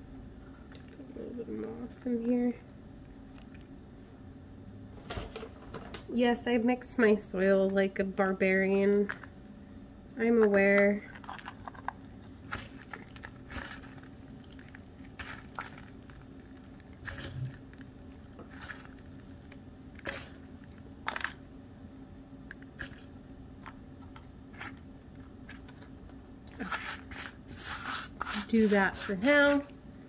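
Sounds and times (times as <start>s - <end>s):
hands crunching bark chips: 11.1s - 21.4s.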